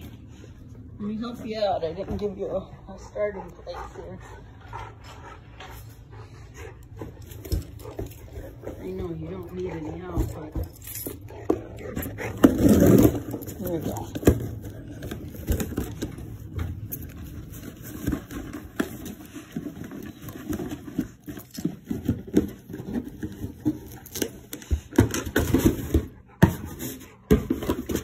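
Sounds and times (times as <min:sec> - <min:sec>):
dog scraping cardboard box: 0:11.9 - 0:16.0.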